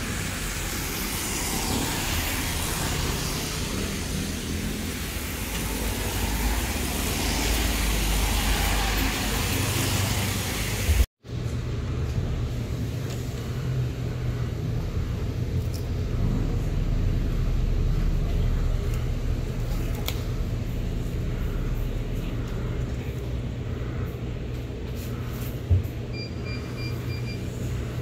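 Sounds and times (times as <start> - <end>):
tyres hissing on wet road: 0.0 - 11.1
steady low hum: 10.7 - 28.0.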